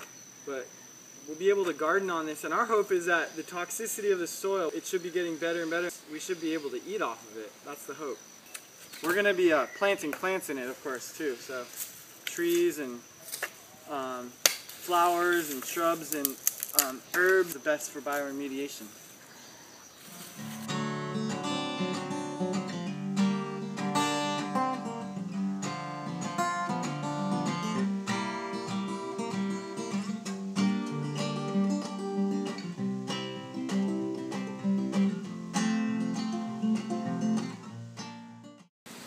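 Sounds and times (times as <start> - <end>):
strummed acoustic guitar: 20.4 - 38.7.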